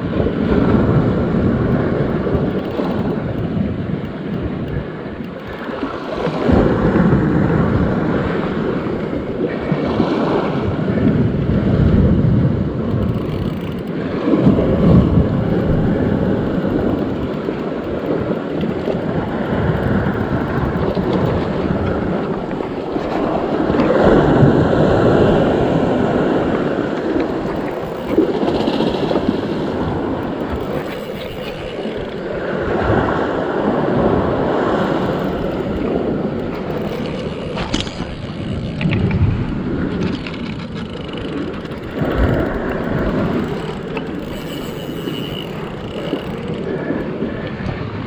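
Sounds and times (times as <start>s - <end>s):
surf washing against rocks: 0.0s - 48.0s
wind buffeting microphone: 0.0s - 48.0s.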